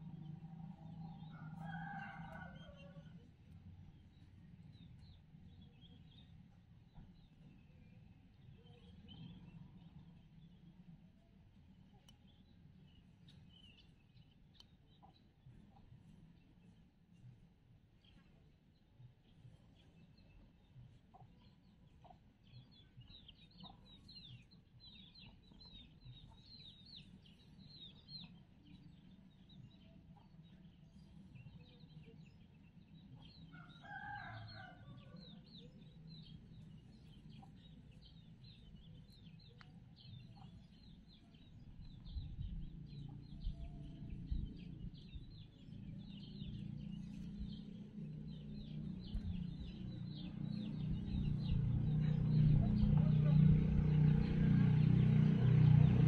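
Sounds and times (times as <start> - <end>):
small birds chirping: 0.0 - 56.0
rooster crowing: 1.3 - 3.2, 33.5 - 35.4
low rumble: 41.4 - 54.4.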